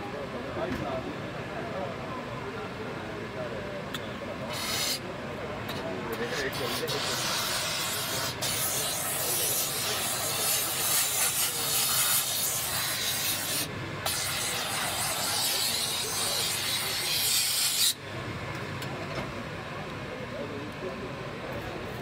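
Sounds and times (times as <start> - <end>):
steam cleaner hissing: 4.6 - 5.0, 6.6 - 18.0.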